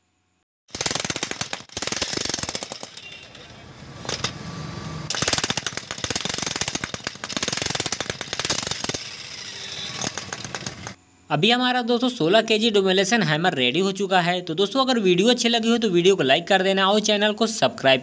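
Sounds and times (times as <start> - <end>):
demolition hammer pounding stone: 5.1 - 9.2, 9.9 - 11.0.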